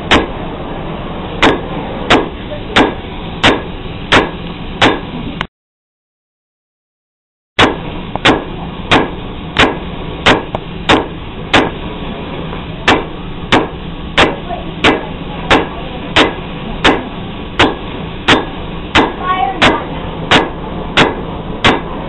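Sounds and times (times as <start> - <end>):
steady low hum: 0.0 - 5.5, 7.6 - 22.0
hammer striking an anvil: 0.1 - 0.4, 1.4 - 5.1, 7.6 - 11.8, 12.8 - 22.0.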